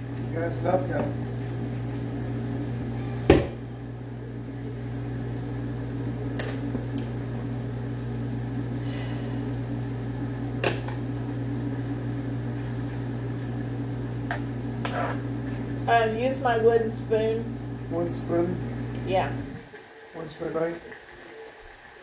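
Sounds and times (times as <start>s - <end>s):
kitchen appliance motor humming: 0.0s - 22.0s.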